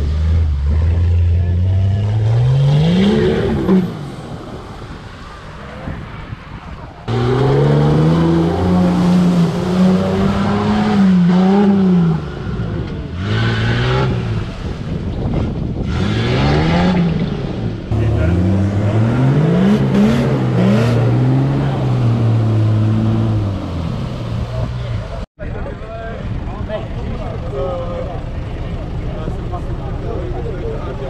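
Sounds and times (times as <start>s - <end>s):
truck engines revving in mud: 0.0s - 6.0s, 7.0s - 25.3s.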